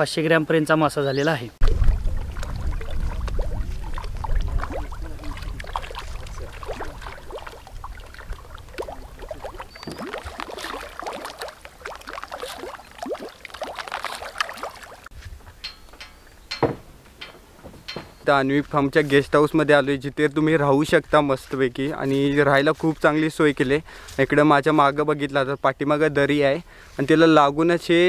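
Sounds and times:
low rumble: 1.6 - 9.4
fish splashing in water: 1.6 - 15.1.

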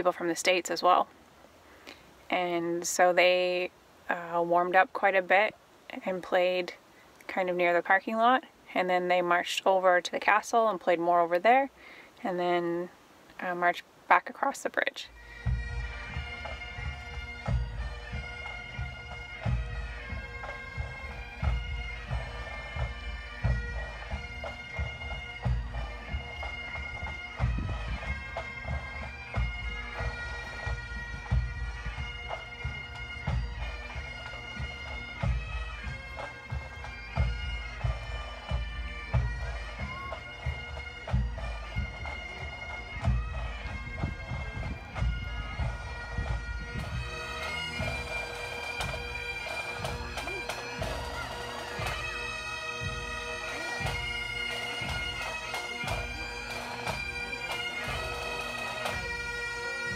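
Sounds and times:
bagpipes playing a tune: 15.0 - 59.9
drums beating time: 15.2 - 58.0.

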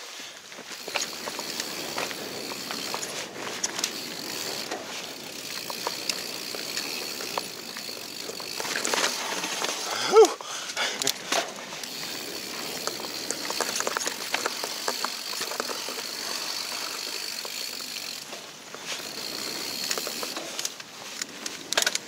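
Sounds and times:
bike tyres rolling on dirt: 0.0 - 22.0
bike clicks and knocks: 0.5 - 22.0.

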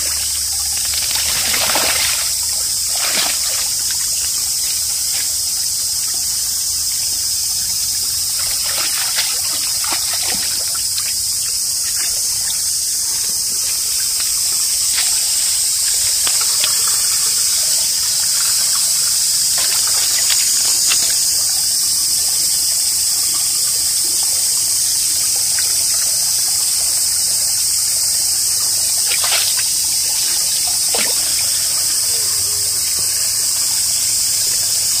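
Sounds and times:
dog splashing through water: 0.0 - 4.4, 8.3 - 11.2, 13.7 - 21.4, 29.0 - 32.7
stream water trickling: 0.0 - 35.0.

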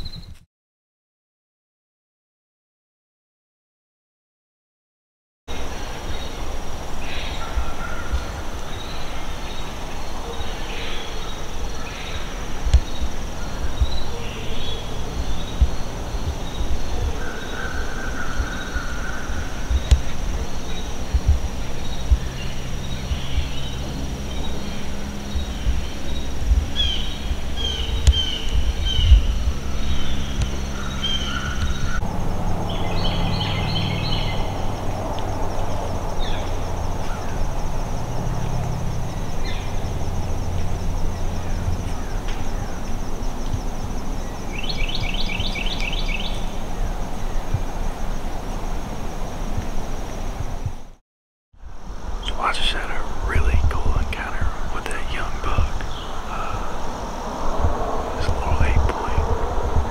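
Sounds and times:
bird calls: 5.5 - 32.0, 35.6 - 47.6, 52.2 - 57.2, 58.1 - 59.9
high insect drone: 5.5 - 51.0, 51.6 - 59.9
wind buffeting microphone: 11.2 - 50.9, 55.4 - 59.9.

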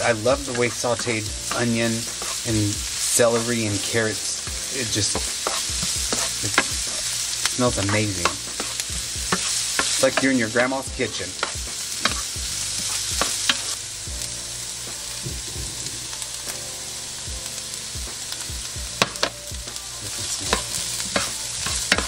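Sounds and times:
vegetables sizzling in a skillet: 0.0 - 22.0
spoon scraping a pan: 0.4 - 10.4, 11.3 - 13.8, 20.1 - 22.0.

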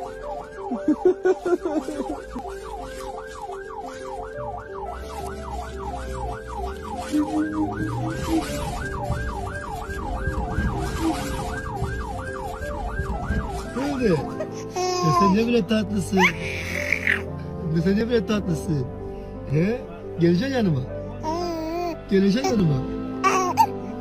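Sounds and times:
emergency siren yelping: 0.0 - 15.3
low rumble: 4.5 - 14.3.

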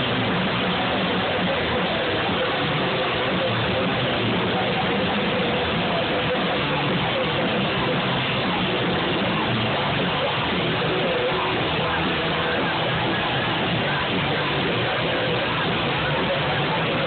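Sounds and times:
loud distorted rock music: 0.0 - 17.0.

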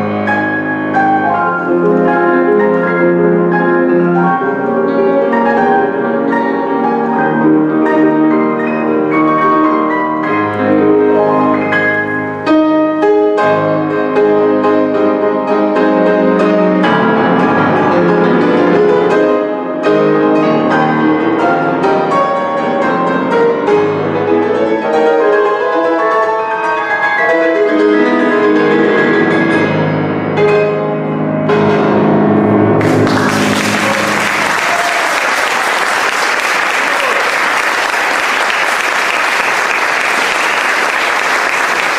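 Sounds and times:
grand piano playing: 0.0 - 41.9
audience applause: 32.8 - 41.9.

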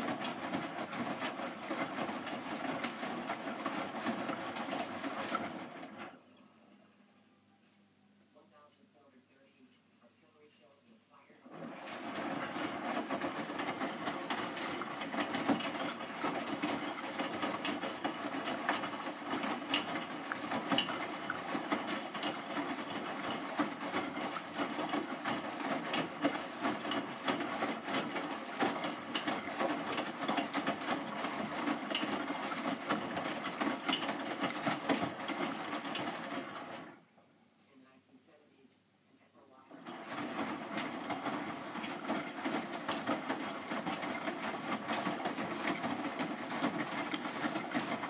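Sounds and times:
washing machine drum sloshing: 0.0 - 6.2, 11.5 - 37.0, 39.7 - 48.0.

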